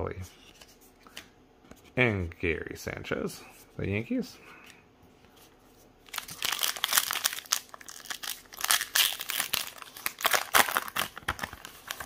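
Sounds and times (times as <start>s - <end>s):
foil wrapper crinkling and ripping: 6.1s - 12.0s.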